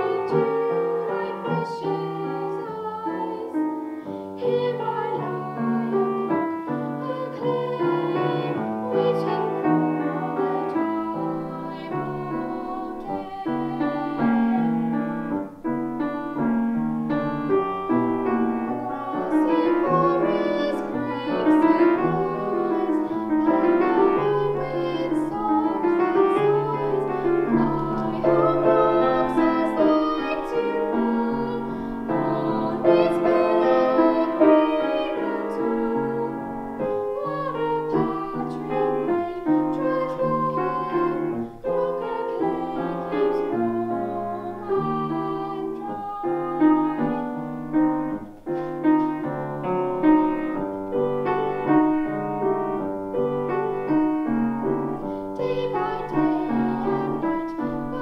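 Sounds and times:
girl singing with vibrato: 0.0s - 58.0s
grand piano: 0.0s - 58.0s.

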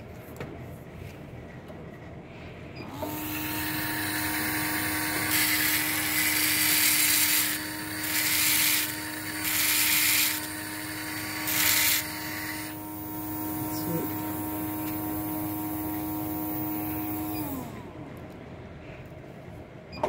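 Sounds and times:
dental handpiece whining: 2.9s - 17.8s
drill grinding hiss: 3.0s - 17.8s.

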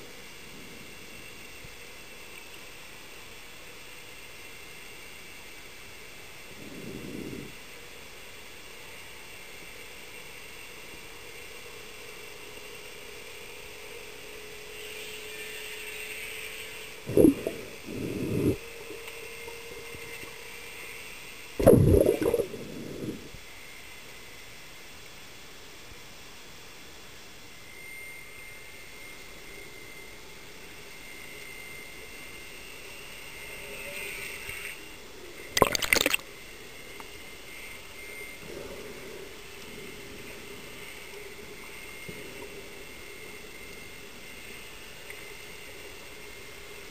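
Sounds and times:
faint steady whines: 0.0s - 46.9s
underwater hiss: 6.4s - 7.7s, 17.0s - 18.6s, 21.6s - 23.4s
rapid bubbling crackles: 17.0s - 18.6s, 21.6s - 23.4s, 35.6s - 36.2s
bursts of low rumbling noise: 17.1s - 18.6s, 21.6s - 23.4s.

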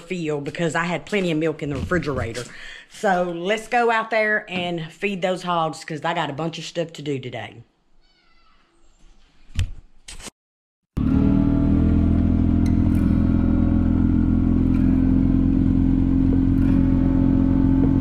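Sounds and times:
utility vehicle engine running: 11.0s - 18.0s.

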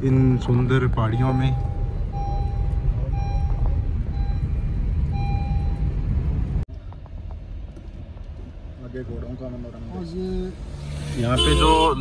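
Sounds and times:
engine and road rumble: 0.0s - 12.0s
high beeping tone: 0.2s - 5.9s.

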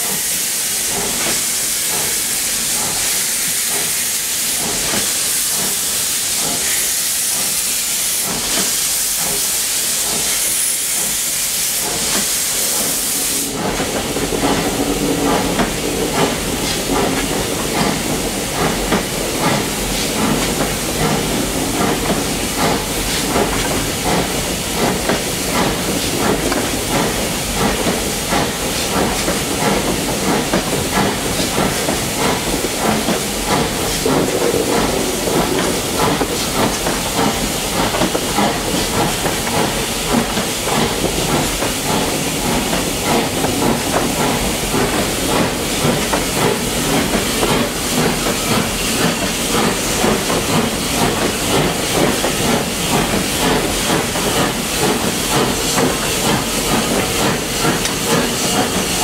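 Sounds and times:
steam hissing from locomotive: 0.0s - 59.0s.

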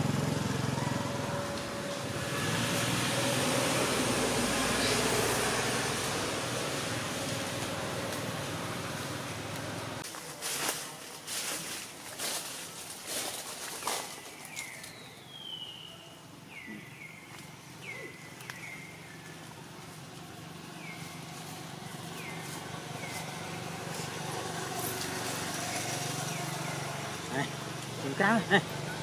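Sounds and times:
vehicle engine hum: 0.0s - 10.3s, 16.3s - 29.0s.

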